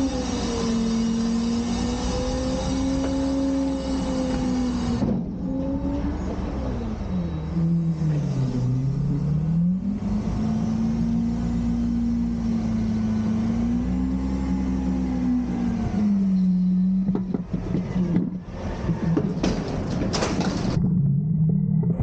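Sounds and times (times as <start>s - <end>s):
truck diesel engine revving: 0.0s - 19.1s
knocks: 17.1s - 20.9s.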